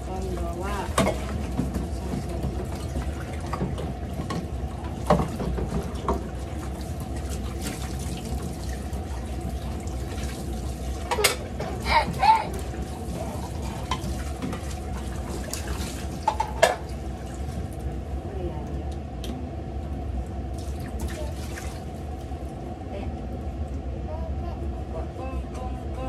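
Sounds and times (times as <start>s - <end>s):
tap water running into basin: 0.0s - 18.1s, 20.2s - 22.6s.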